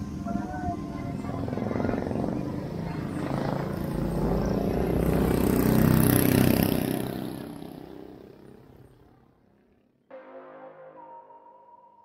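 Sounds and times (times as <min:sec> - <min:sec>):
street traffic: 0:00.0 - 0:09.8
vehicle engine passing: 0:03.3 - 0:08.8.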